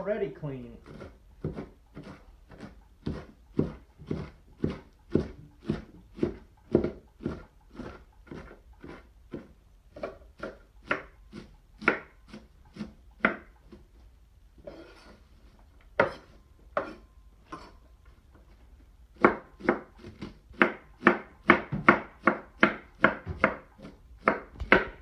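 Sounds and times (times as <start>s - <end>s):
knife chopping cabbage on board: 0.8s - 13.9s, 16.0s - 17.0s, 19.1s - 25.0s.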